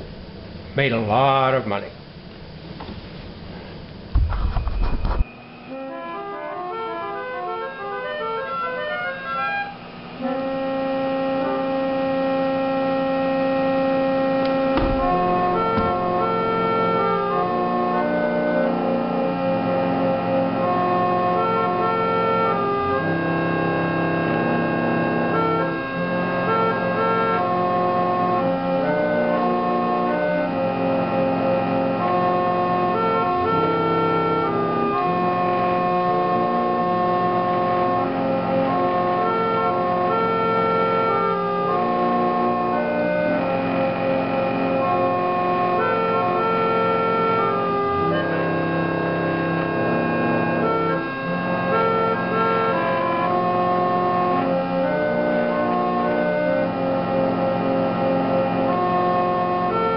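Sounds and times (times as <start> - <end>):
reed organ playing a tune: 3.3 - 59.9
soft knock: 14.8 - 16.0.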